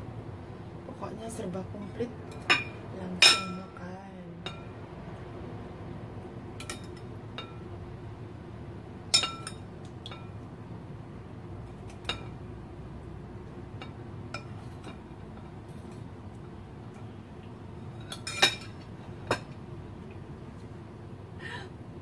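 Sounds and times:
metal spoon clinking on ceramic bowls: 2.3 - 3.8, 9.1 - 10.3, 18.0 - 19.6.

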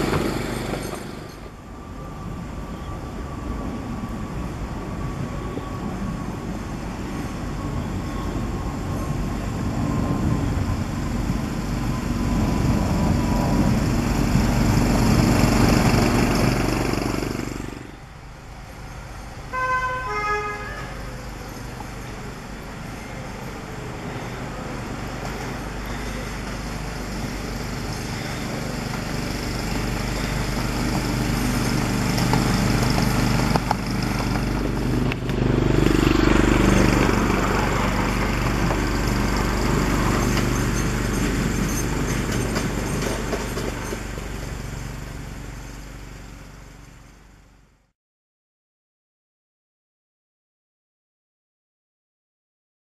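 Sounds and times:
miniature locomotive running: 21.3 - 46.0.

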